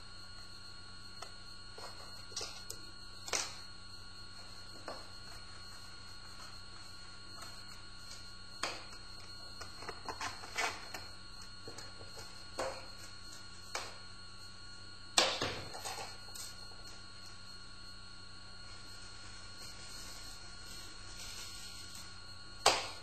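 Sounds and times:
faint hum and hiss: 0:00.0 - 0:23.0.

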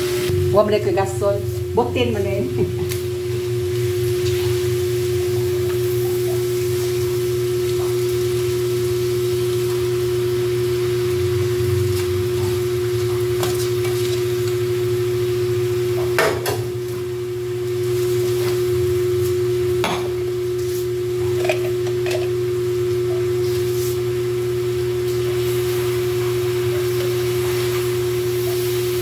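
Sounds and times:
steady hum: 0:00.0 - 0:29.0
metal pots clanking: 0:21.3 - 0:22.4.

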